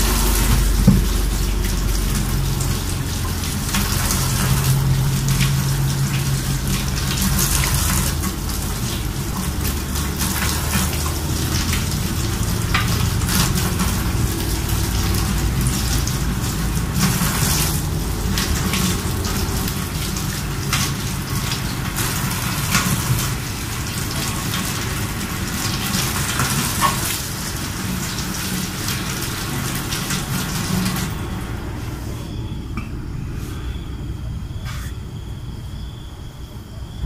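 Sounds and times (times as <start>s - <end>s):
tap water splashing into sink: 0.0s - 31.6s
fruit knocking against sink: 0.6s - 1.1s.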